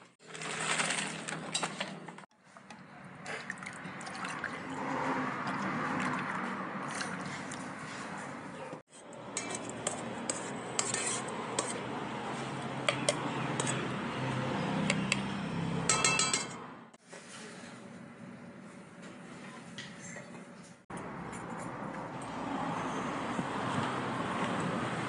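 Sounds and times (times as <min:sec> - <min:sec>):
spoon scraping a metal pot: 0:08.9 - 0:14.0, 0:15.9 - 0:16.6
ringing taps on metal: 0:15.9 - 0:16.6.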